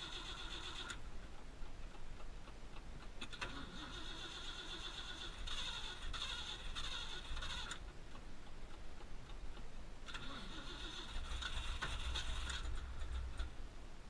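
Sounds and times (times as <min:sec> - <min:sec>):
engine starter cranking: 0:00.0 - 0:01.0, 0:03.2 - 0:07.8, 0:10.1 - 0:13.5.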